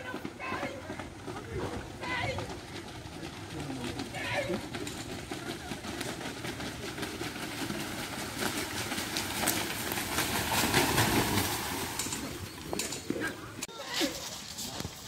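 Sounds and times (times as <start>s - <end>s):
buffaloes splashing through water: 4.6s - 15.0s.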